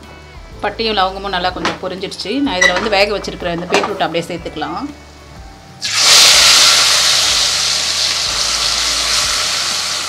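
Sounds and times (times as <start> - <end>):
food sizzling in hot oil: 5.8 - 10.0.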